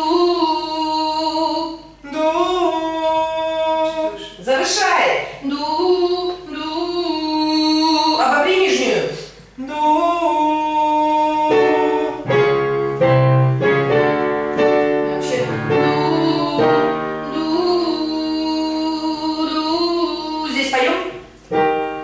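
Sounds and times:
person singing long notes: 0:00.0 - 0:04.4, 0:09.6 - 0:13.7, 0:14.6 - 0:20.6
piano chords: 0:11.1 - 0:22.0.

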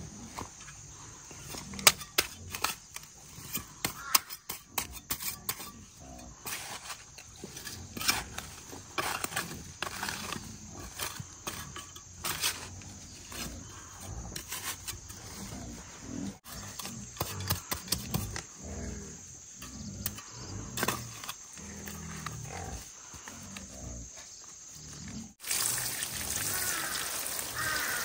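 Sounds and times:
hands scraping damp soil: 0:00.0 - 0:18.5.

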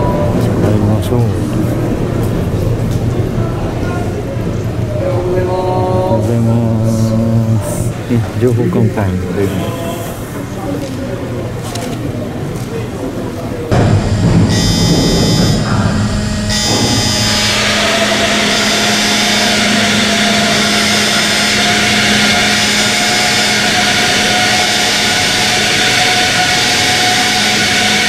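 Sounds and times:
ship machinery drone: 0:00.0 - 0:28.0
high whine: 0:13.7 - 0:28.0
low hum: 0:13.7 - 0:28.0
rushing noise: 0:13.7 - 0:28.0.

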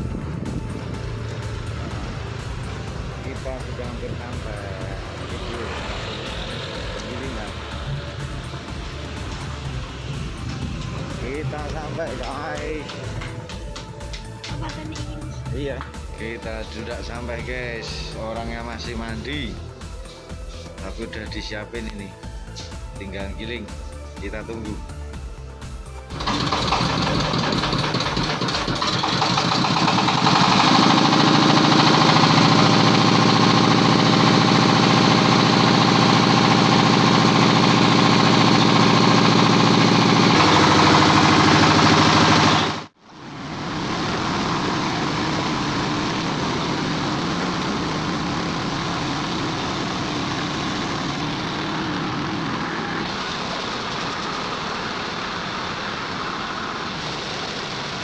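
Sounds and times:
diesel engine running: 0:00.0 - 0:58.0
meat grinder grinding: 0:26.1 - 0:42.9.

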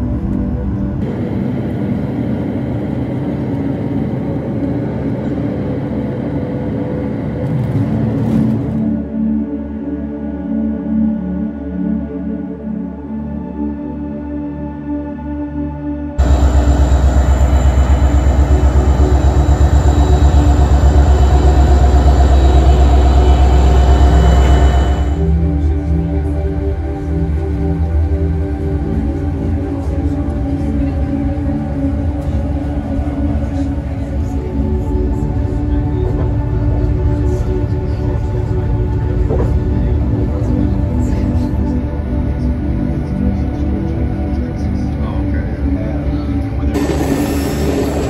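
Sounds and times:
jet engines roaring in cabin: 0:00.3 - 0:09.0, 0:16.2 - 0:27.4, 0:46.4 - 0:48.0
diesel locomotive idling: 0:16.2 - 0:25.7.

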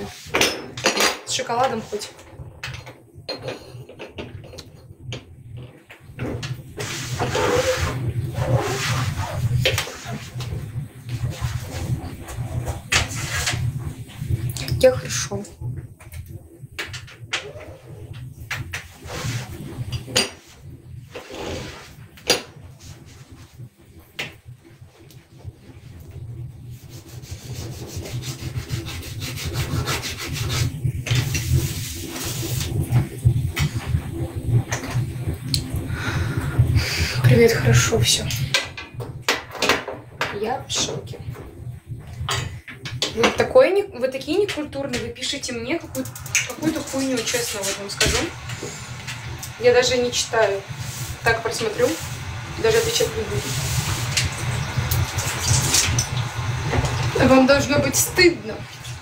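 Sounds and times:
sponge scrubbing counter: 0:00.0 - 0:00.4, 0:06.6 - 0:14.3, 0:18.9 - 0:19.9, 0:26.6 - 0:33.2, 0:44.8 - 0:59.0
dishes knocking and clattering: 0:00.3 - 0:06.7, 0:19.8 - 0:20.5, 0:22.2 - 0:22.6, 0:38.5 - 0:41.0
running water: 0:40.3 - 0:59.0.

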